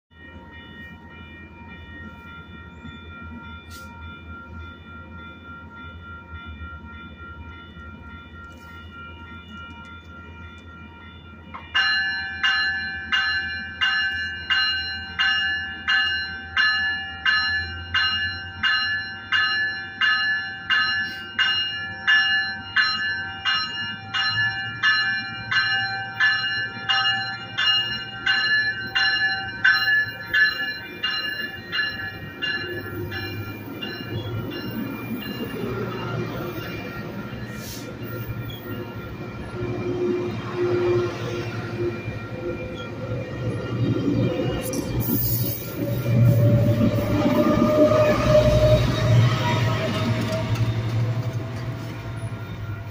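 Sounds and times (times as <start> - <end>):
train warning bell ringing: 0.1 - 52.9.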